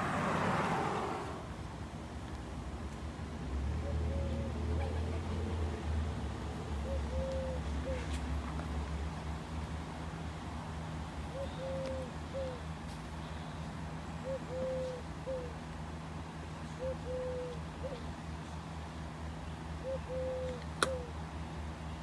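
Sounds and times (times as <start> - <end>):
dove cooing: 3.8 - 5.4, 6.7 - 8.2, 11.3 - 12.6, 14.2 - 15.6, 16.8 - 18.0, 19.8 - 21.1.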